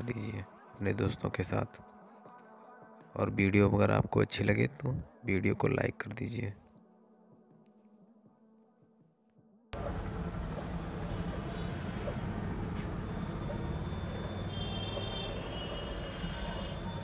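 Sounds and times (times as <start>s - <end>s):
printer motors humming: 9.8s - 17.0s
thin high whine: 9.8s - 17.0s.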